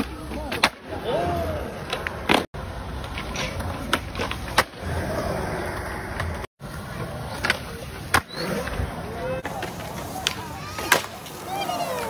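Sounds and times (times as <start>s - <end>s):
skateboard wheels rolling on concrete: 0.0s - 12.0s
skateboard clacks: 1.8s - 8.8s, 9.4s - 12.0s.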